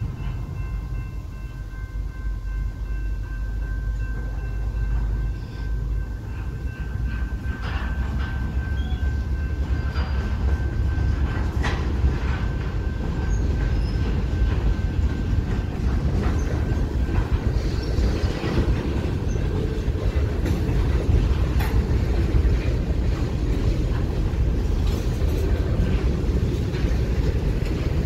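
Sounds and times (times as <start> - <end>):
train wheels rumbling on rail: 0.0 - 28.0.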